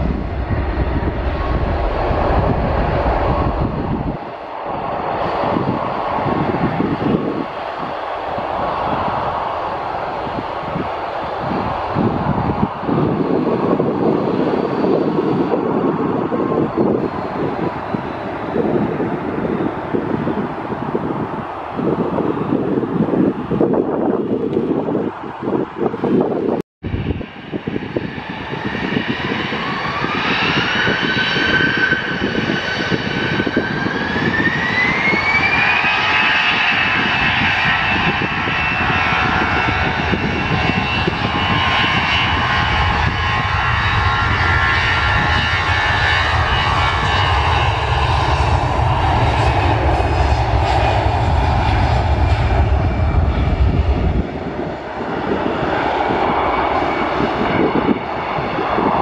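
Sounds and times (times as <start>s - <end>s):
jet engines rumbling at full power: 0.0s - 59.0s
jet engines spooling up: 0.0s - 59.0s.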